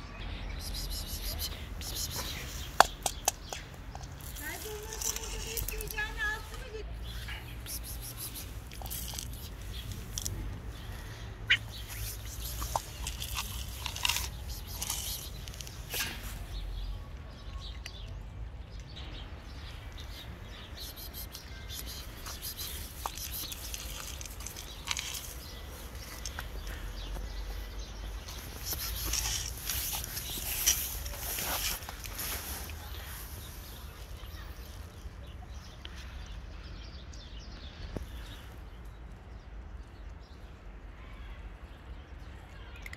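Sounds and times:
small birds chirping: 0:00.0 - 0:42.9
cats crunching dry kibble: 0:01.2 - 0:06.6, 0:07.4 - 0:16.4, 0:20.0 - 0:34.9.

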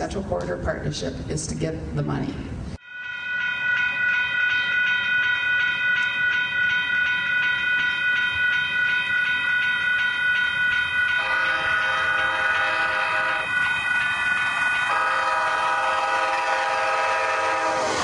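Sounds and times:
train horn blast: 0:11.2 - 0:13.6, 0:14.9 - 0:18.0
lower horn note: 0:14.9 - 0:18.0.

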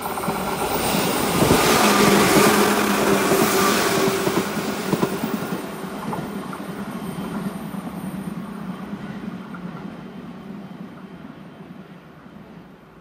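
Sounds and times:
rail joint clicks: 0:00.0 - 0:10.1
electric train passing: 0:00.0 - 0:13.0.

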